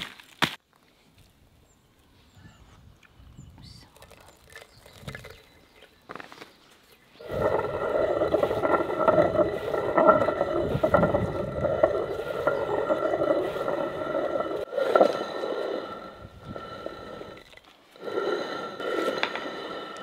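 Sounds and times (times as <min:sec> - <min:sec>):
hand quern grinding salt: 0:07.2 - 0:20.0.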